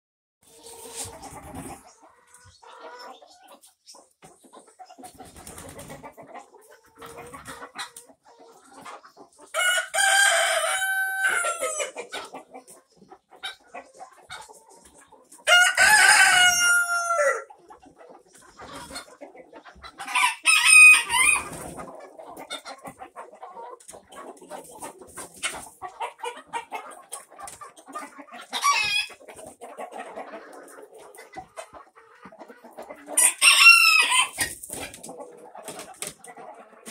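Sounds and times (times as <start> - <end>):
hens clucking: 0.4 - 36.9
roosters crowing: 9.6 - 12.0, 15.4 - 17.5, 20.1 - 21.6, 33.2 - 34.6.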